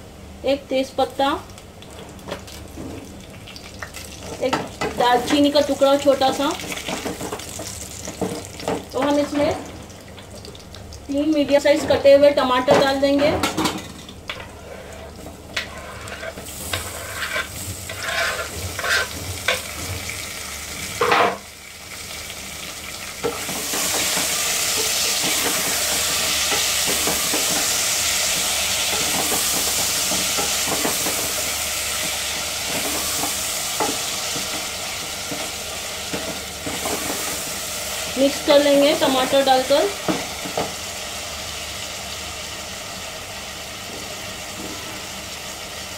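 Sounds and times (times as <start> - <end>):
tomatoes sizzling in hot oil: 0.6 - 45.9
knocks and clatter in a pot: 6.2 - 9.8, 12.7 - 14.5, 28.4 - 31.2, 36.1 - 37.2.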